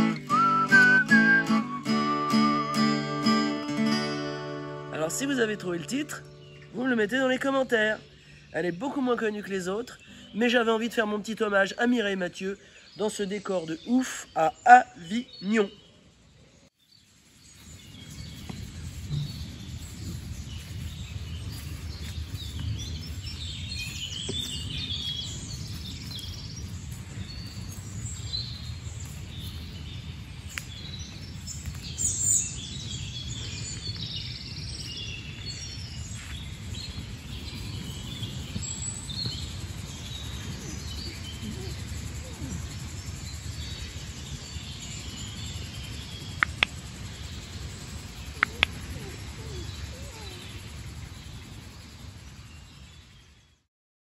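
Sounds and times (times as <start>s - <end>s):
small birds chirping: 5.0s - 53.7s.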